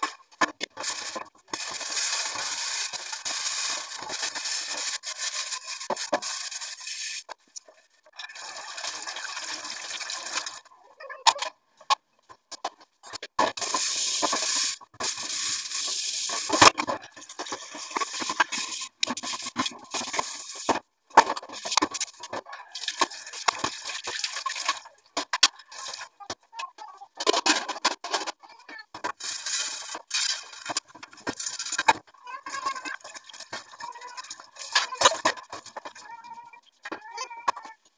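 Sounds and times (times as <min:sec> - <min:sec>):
tap water running into sink: 0:21.6 - 0:26.0.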